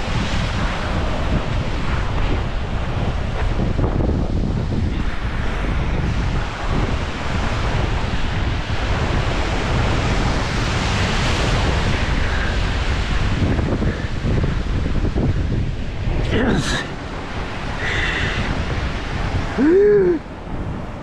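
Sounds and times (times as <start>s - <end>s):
surf breaking over rocks: 0.0s - 21.0s
wind buffeting microphone: 0.0s - 21.0s.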